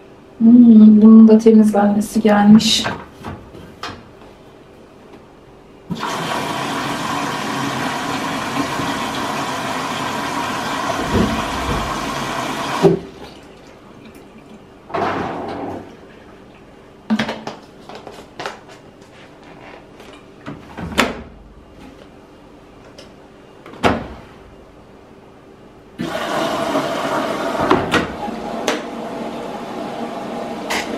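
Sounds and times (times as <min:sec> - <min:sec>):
water rushing into washing machine: 0:05.9 - 0:14.3, 0:26.0 - 0:30.9.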